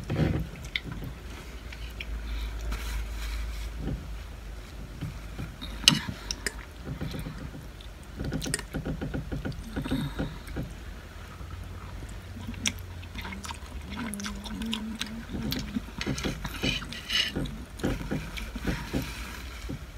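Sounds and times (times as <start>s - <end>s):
steady low hum: 0.0s - 19.9s
chewing and slurping noodles: 11.3s - 19.9s.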